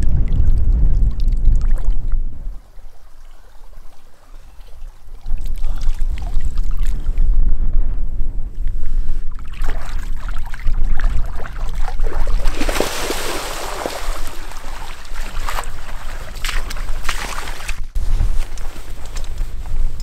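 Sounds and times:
low wind rumble on microphone: 0.0s - 20.0s
fish thrashing in shallow water: 9.2s - 19.1s
wading steps sloshing through water: 9.3s - 19.9s
water splash: 9.4s - 17.9s.

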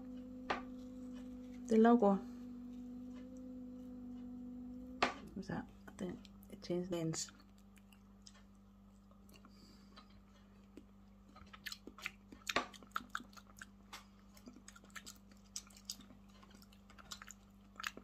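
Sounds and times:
person chewing fruit: 7.2s - 18.0s.

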